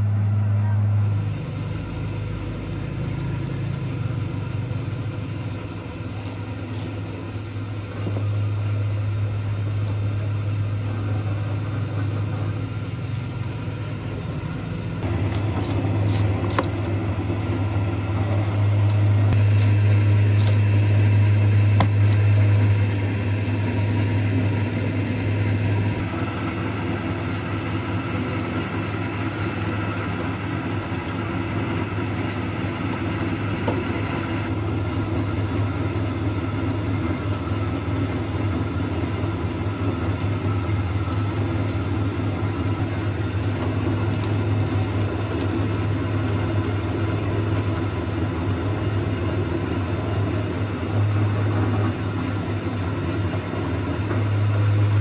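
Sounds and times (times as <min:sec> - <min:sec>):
juice press motor hum: 0:00.0 - 0:55.0
cleaver scraping cane: 0:15.0 - 0:17.6.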